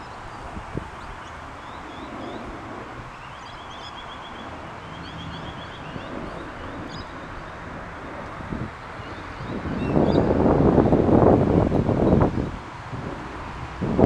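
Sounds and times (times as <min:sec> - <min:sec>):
birds calling: 0:00.0 - 0:10.5
wind buffeting microphone: 0:00.0 - 0:14.0.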